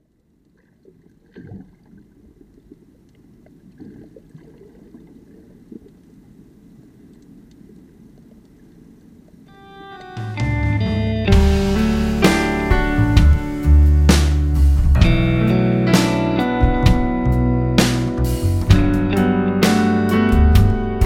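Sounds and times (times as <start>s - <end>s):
faint underwater clicks and knocks: 0.1s - 9.4s
underwater rush of water: 0.6s - 9.5s, 11.4s - 14.1s.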